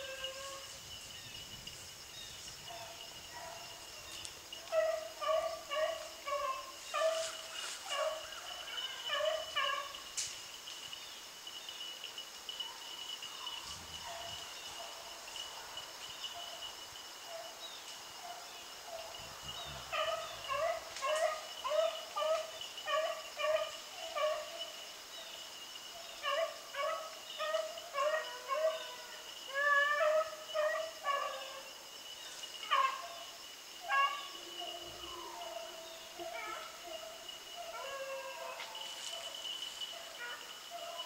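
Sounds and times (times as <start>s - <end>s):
high-pitched insect drone: 0.0s - 41.0s
dogs baying: 2.6s - 10.0s, 12.6s - 16.7s, 18.2s - 24.7s, 26.1s - 31.6s, 32.6s - 41.0s.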